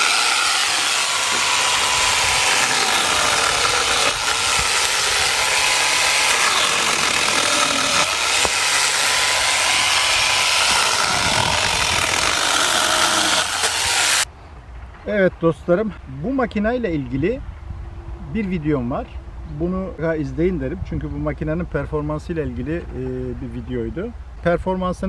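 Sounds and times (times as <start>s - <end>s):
chain rasping through wood: 0.0s - 14.2s.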